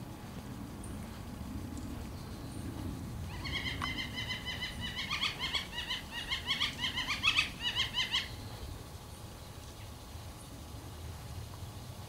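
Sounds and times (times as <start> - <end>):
young bird calling rapid notes: 3.3 - 8.4.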